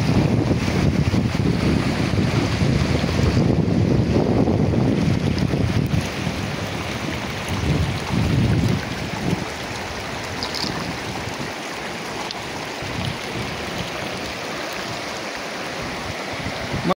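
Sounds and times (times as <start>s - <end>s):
wind buffeting microphone: 0.0s - 11.8s, 12.4s - 15.1s, 15.7s - 16.9s
river rushing over stones: 0.0s - 17.0s.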